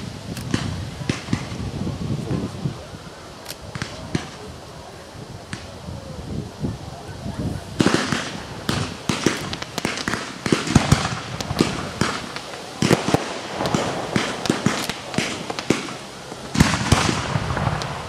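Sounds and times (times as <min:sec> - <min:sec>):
fireworks bangs and pops: 0:00.0 - 0:18.0.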